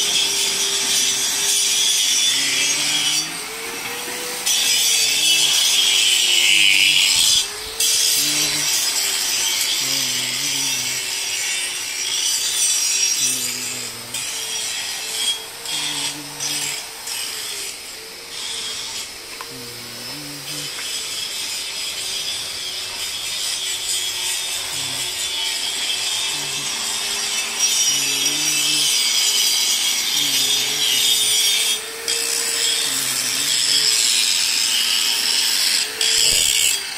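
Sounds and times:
angle grinder grinding steel: 0.0 - 36.9.

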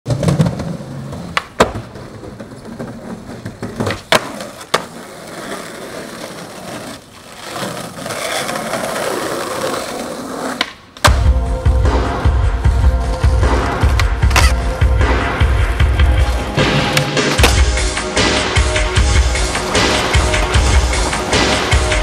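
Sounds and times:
skateboard wheels rolling on pavement: 0.1 - 11.1, 15.8 - 17.9, 18.7 - 22.0
skateboard clacking: 0.1 - 11.2, 19.4 - 22.0.

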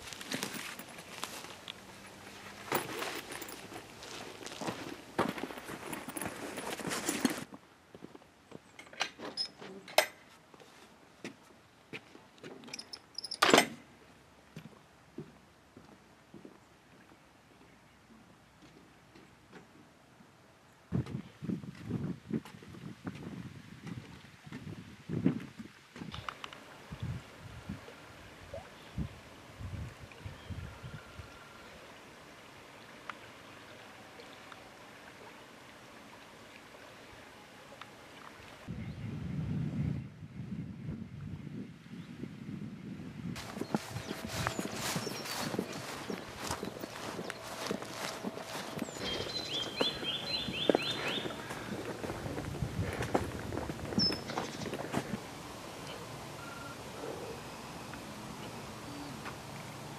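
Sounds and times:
footsteps: 0.0 - 8.2, 43.4 - 55.2.

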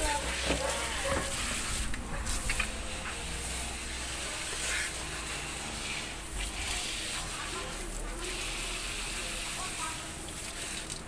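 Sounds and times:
hose nozzle spraying water: 0.0 - 11.0
water splashing on plastic grate: 9.4 - 11.0.

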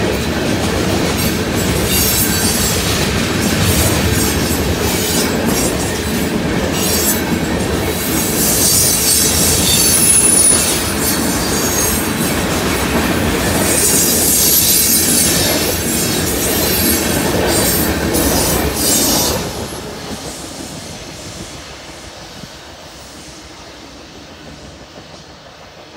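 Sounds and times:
train wheels rumbling on rail: 0.0 - 25.9
high wheel squeal: 8.4 - 12.1.

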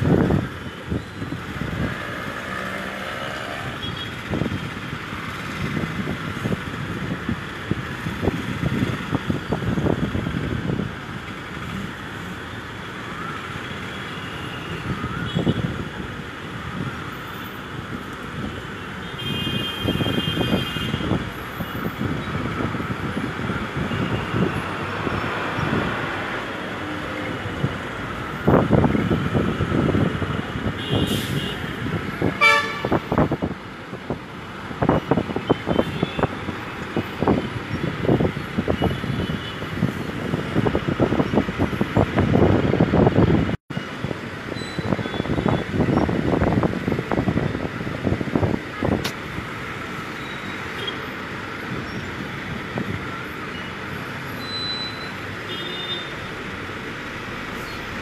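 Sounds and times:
road traffic noise: 0.0 - 58.0
vehicle horns: 19.0 - 21.2, 30.7 - 33.2, 35.4 - 36.4, 54.4 - 56.2.

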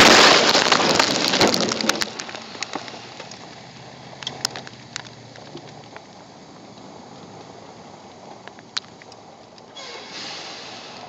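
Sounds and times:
car crash impact: 0.0 - 3.6
scattered clicks and crackles: 0.0 - 9.8.

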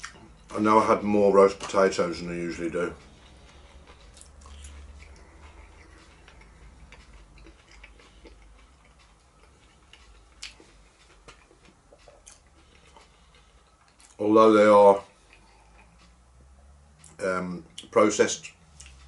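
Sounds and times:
person chewing: 0.0 - 0.6, 2.9 - 14.2, 15.1 - 16.2, 18.7 - 19.0.

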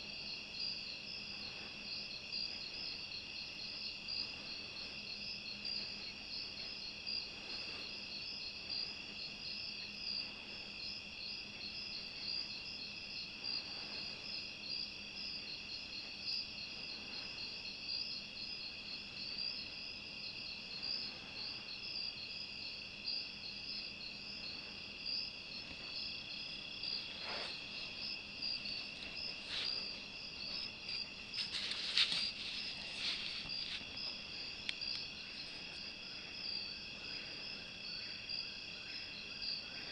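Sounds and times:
night insects droning: 0.0 - 39.9
handling knocks and rustles: 30.8 - 34.0.

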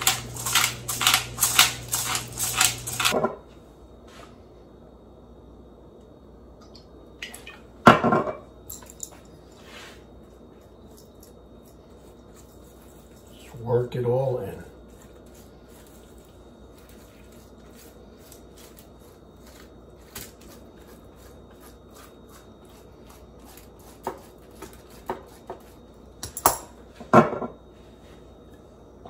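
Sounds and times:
pastry brush dabbing and scraping: 11.7 - 13.5, 14.8 - 19.7.

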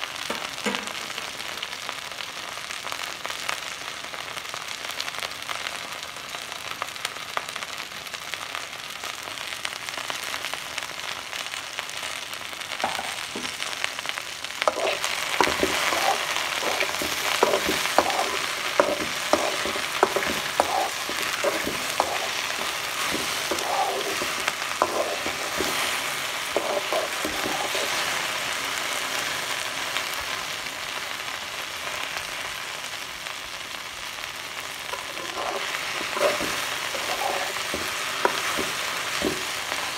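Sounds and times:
okra sizzling in oil: 0.0 - 39.9
metal spoon scraping pan: 14.7 - 28.1, 34.9 - 39.6.

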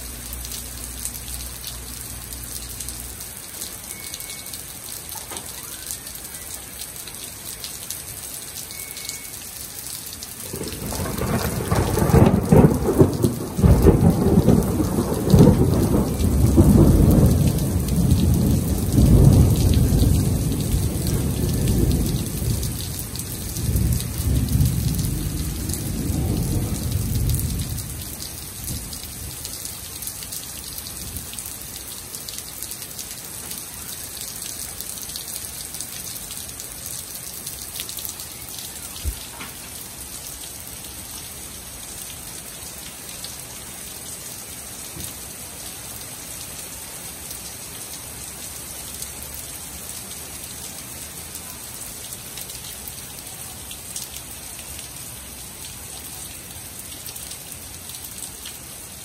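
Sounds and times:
steady rain: 0.0 - 59.0
thunder rolling: 10.5 - 29.3.

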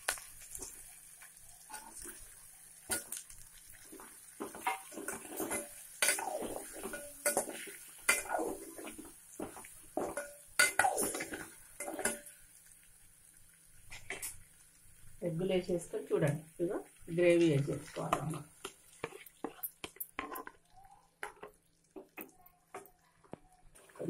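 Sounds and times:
spoon scraping metal pot: 4.4 - 12.3, 17.8 - 20.6.

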